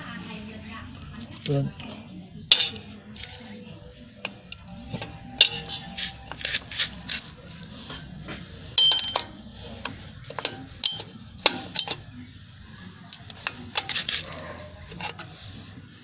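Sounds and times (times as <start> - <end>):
metallic ring: 2.5 - 3.4, 4.7 - 7.3, 8.7 - 9.5, 10.3 - 12.1
steel tools clicking and scraping: 2.5 - 3.5, 4.2 - 12.2, 13.1 - 15.7.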